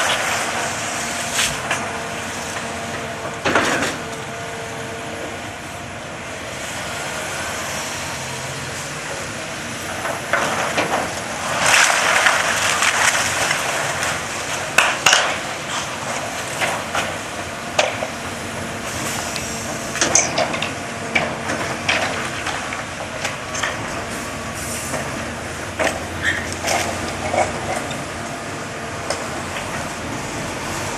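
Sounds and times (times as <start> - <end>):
excavator engine running: 0.0 - 30.9
metal clanks and scrapes: 3.4 - 4.2.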